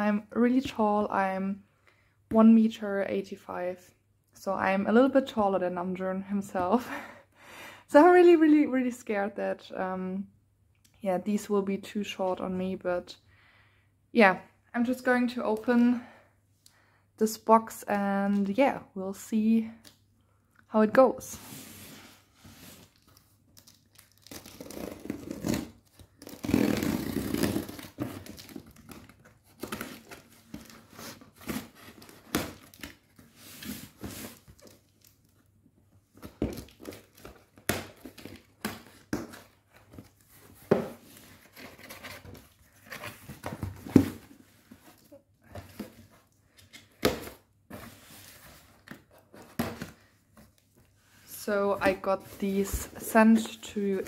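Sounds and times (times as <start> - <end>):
tape ripping: 23.6 - 29.0
cardboard tearing: 23.6 - 34.8.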